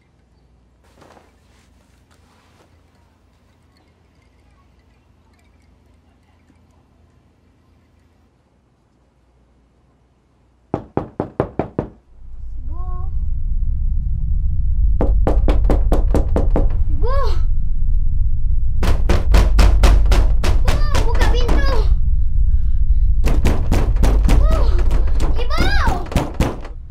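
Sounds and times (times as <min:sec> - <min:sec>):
rapid knocking on a door: 0:10.8 - 0:12.0, 0:15.2 - 0:16.8, 0:18.8 - 0:21.8, 0:23.2 - 0:26.8
deep low rumble: 0:12.1 - 0:26.9
child crying out: 0:17.0 - 0:17.5, 0:24.4 - 0:26.2.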